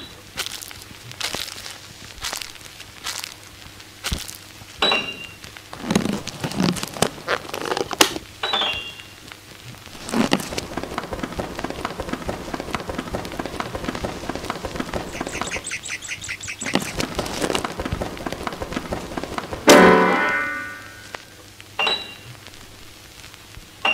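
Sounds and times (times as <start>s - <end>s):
crackling clicks: 0.0s - 23.9s
high ticks: 10.1s - 19.9s
high chirp: 15.1s - 17.0s.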